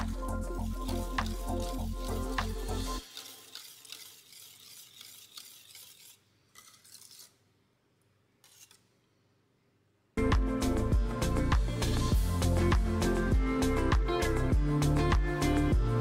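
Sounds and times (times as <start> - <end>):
background music: 0.0 - 3.3, 10.2 - 16.0
whisk scraping a metal pot: 0.0 - 7.4.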